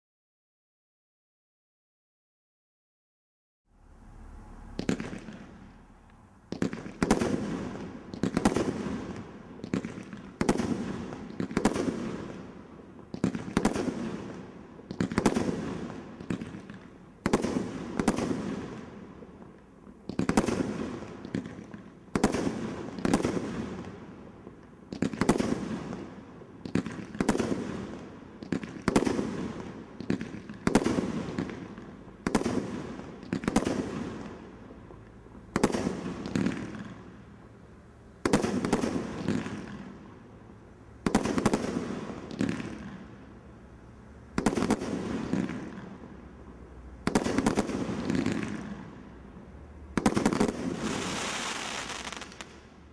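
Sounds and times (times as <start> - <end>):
roman candle firework bangs: 4.7 - 5.8, 6.5 - 12.2, 26.7 - 34.2.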